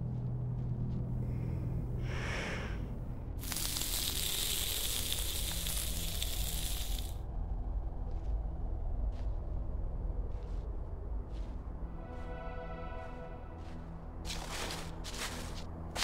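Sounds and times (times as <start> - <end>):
low steady hum: 0.0 - 16.0
meat sizzling: 3.4 - 7.2.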